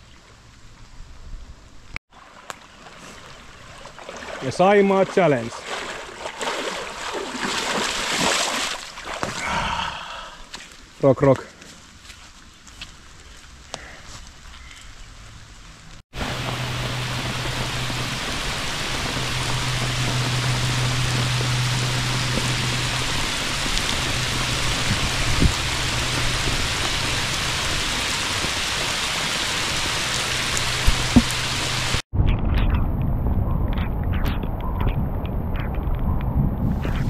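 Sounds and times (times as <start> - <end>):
heavy rain pouring: 16.1 - 32.0
low steady hum: 16.2 - 28.8.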